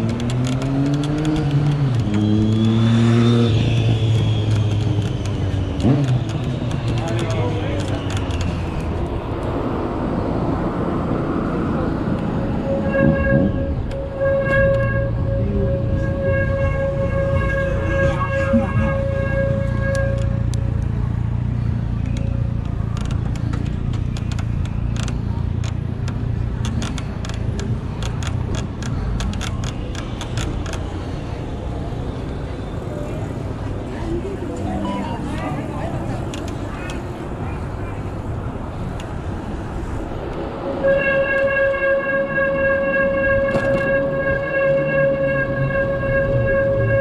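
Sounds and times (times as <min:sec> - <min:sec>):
sharp clicks: 0:00.0 - 0:02.8, 0:22.0 - 0:30.9
street traffic noise: 0:00.0 - 0:47.0
wind and road noise: 0:00.0 - 0:47.0
steady pitched tone: 0:11.1 - 0:20.5.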